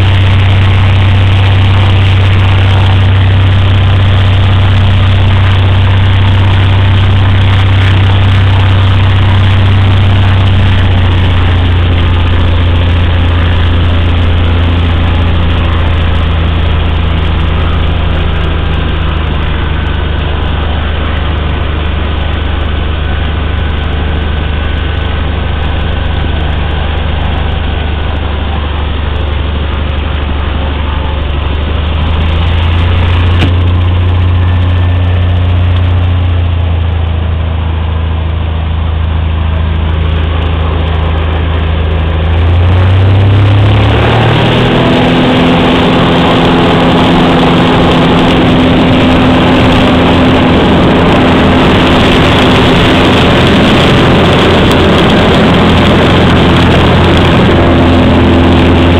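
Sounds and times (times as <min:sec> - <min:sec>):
airplane piston engine and propeller: 0:00.0 - 0:58.9.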